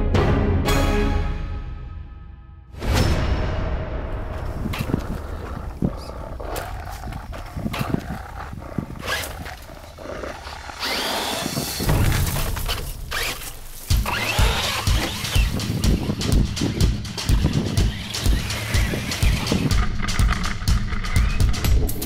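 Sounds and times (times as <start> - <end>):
tyres churning dirt: 4.2 - 22.0
electric motor spinning up: 7.8 - 16.0.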